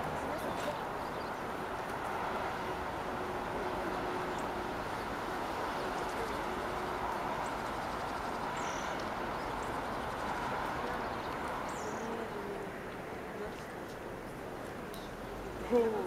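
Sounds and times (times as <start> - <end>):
steady outdoor rumble: 0.0 - 16.0.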